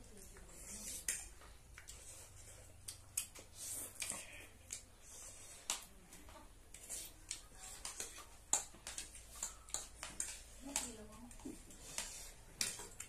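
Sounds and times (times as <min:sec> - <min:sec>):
slurping and chewing: 0:00.3 - 0:06.0, 0:06.7 - 0:13.0
cutlery clicking on plates: 0:07.3 - 0:11.4.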